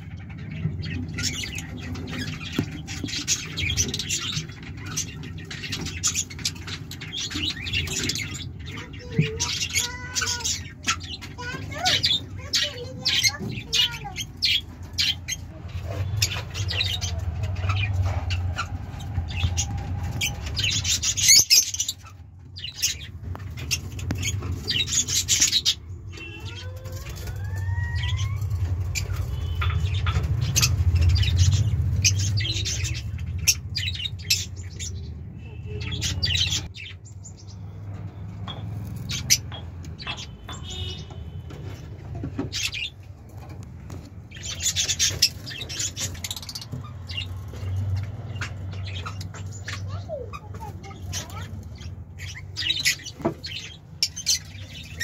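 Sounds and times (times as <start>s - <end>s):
lovebirds chirping and squawking: 0.0s - 55.0s.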